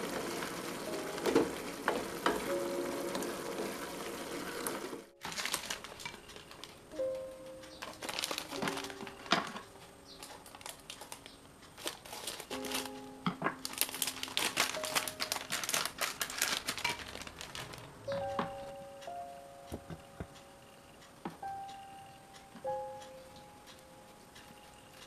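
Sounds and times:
soft background music: 0.0s - 25.0s
plastic packet crinkling: 5.2s - 7.0s, 7.8s - 18.3s.

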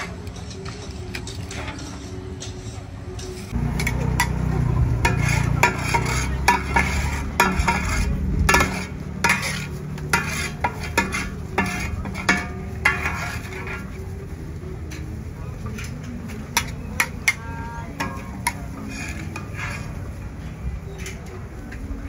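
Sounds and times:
metal spatula scraping a wok: 1.2s - 14.2s, 15.6s - 21.3s
steady low rumble: 3.5s - 10.1s.

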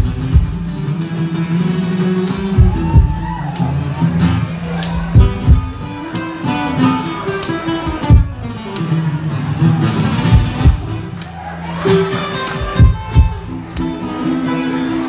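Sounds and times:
heavy low thumps: 0.0s - 0.8s, 2.6s - 3.4s, 5.0s - 5.8s, 10.3s - 11.0s
acoustic guitar strummed: 0.0s - 15.0s
tambourine jingling: 0.0s - 15.0s.

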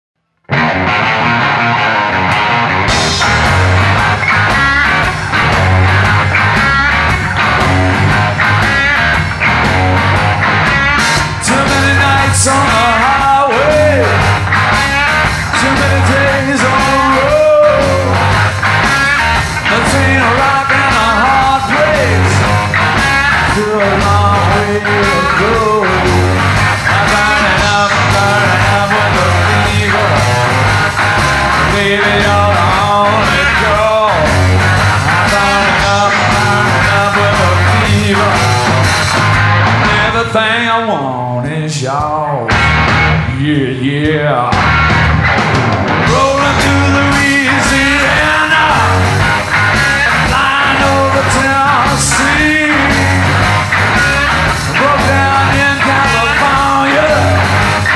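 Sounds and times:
electric guitar lead lines: 0.4s - 57.9s
bass and drum beat: 0.5s - 40.8s, 41.4s - 57.9s.

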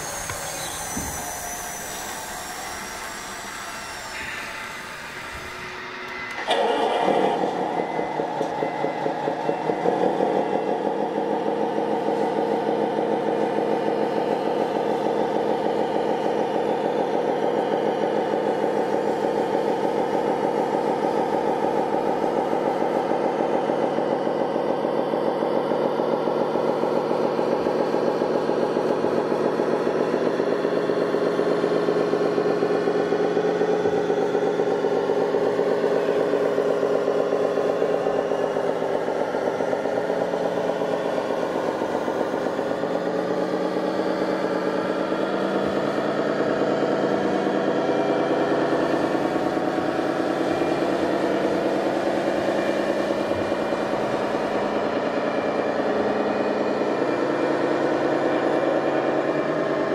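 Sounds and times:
diesel engine sound from loudspeaker: 0.0s - 59.9s.

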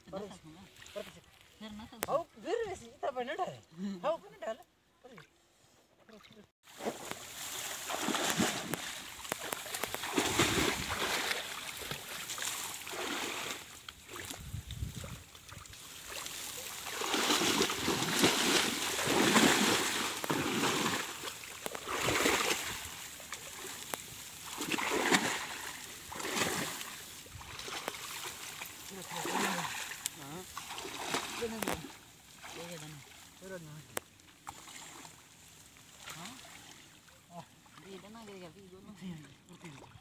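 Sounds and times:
splashing in shallow water: 6.0s - 40.0s
reeds rustling: 6.7s - 33.3s.

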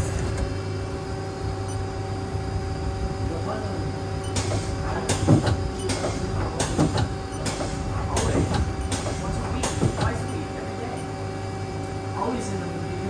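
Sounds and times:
machine humming: 0.0s - 13.0s
lathe turret clunking: 3.9s - 11.7s.

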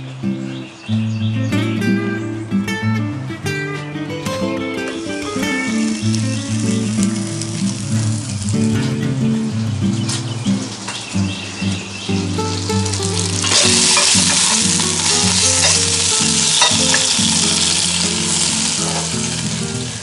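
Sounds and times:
bacon sizzling in a pot: 5.3s - 8.7s, 12.5s - 20.0s.

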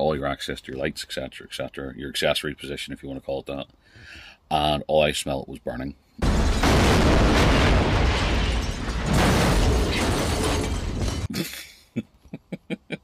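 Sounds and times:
loud explosion blast: 6.2s - 11.3s.

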